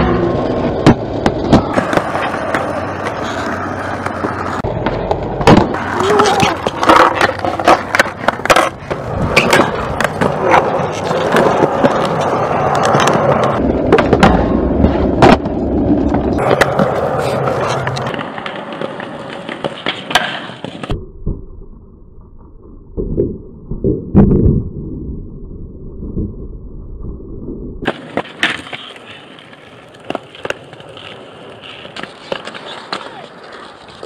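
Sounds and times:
skateboard wheels rolling on concrete: 0.0s - 21.0s, 27.2s - 34.0s
skateboard pops and clacks: 0.8s - 21.0s, 27.8s - 34.0s.

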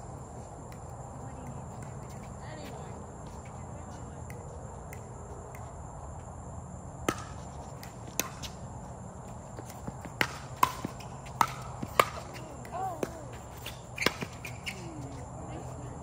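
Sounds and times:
ball bouncing: 7.0s - 8.6s, 9.5s - 14.9s
paddles popping against ball: 9.6s - 13.3s.

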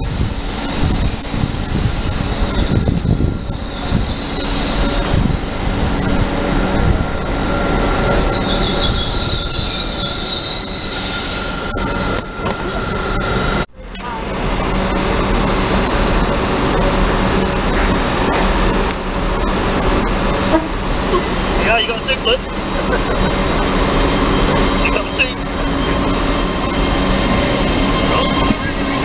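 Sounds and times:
train wheel squeal: 0.0s - 13.7s, 23.2s - 29.0s
train rumble on rails: 0.0s - 29.0s.

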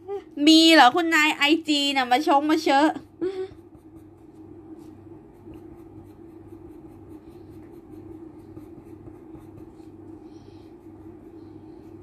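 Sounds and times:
steady low hum: 0.0s - 12.0s
colored pencil scratching on paper: 2.5s - 12.0s.

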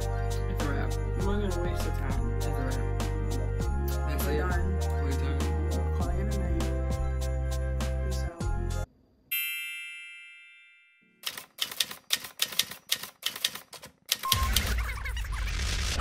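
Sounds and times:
background music: 0.0s - 8.9s
bell ding: 9.3s - 11.2s
typewriter keystroke clacks: 11.2s - 14.4s.

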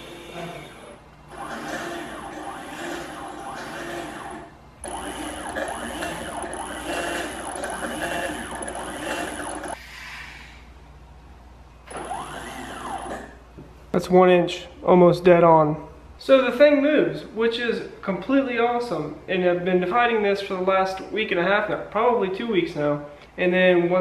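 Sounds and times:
stepper motors whining: 0.0s - 9.8s, 11.9s - 13.4s.

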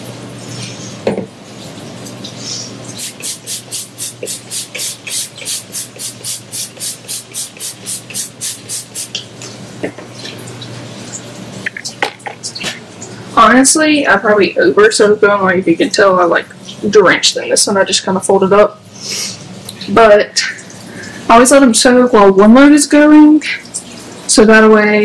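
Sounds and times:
spray bottle hissing sprays: 3.0s - 9.2s.

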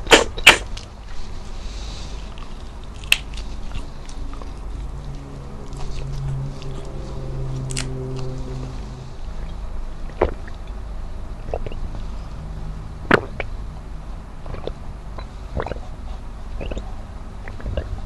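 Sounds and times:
low hum: 0.0s - 18.0s
chewing: 2.2s - 7.0s, 14.5s - 18.0s
swallowing gulps of water: 11.4s - 11.9s, 14.4s - 15.9s, 16.6s - 16.8s, 17.4s - 18.0s
wet mouth clicks: 11.5s - 11.8s, 14.4s - 15.9s, 16.6s - 16.8s, 17.4s - 18.0s.

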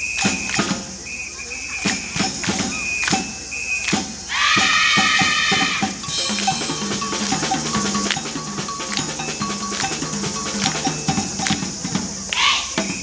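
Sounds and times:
wind band playing upbeat tune: 0.0s - 13.0s
drum kit strokes: 3.9s - 12.2s
bouncing bass line: 4.6s - 11.8s.

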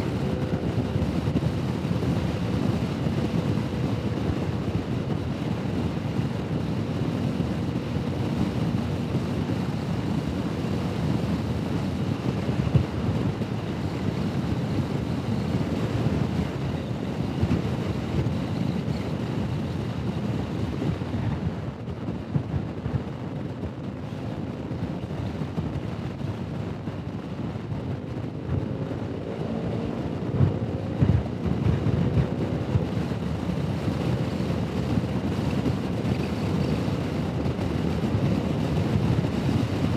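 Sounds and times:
wind rush on microphone: 0.0s - 39.9s.

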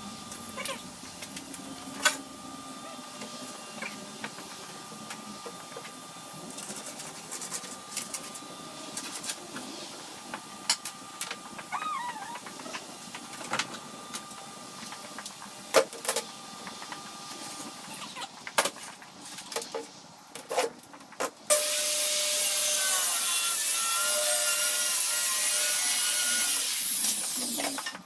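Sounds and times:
wavering animal call: 11.7s - 12.4s.

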